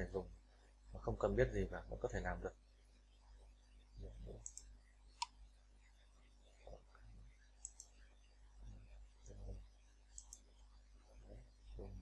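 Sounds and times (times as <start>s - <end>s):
computer mouse clicks: 4.4s - 5.4s, 7.6s - 8.0s, 10.1s - 10.5s.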